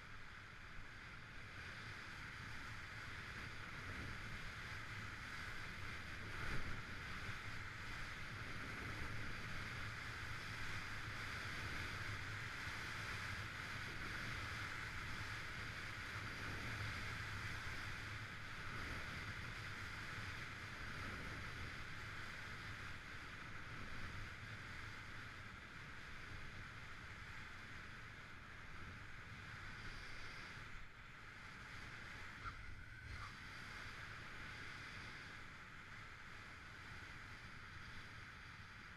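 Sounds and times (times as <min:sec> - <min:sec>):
wind on microphone: 0:01.6 - 0:38.9
skis hissing on packed snow: 0:29.5 - 0:30.7.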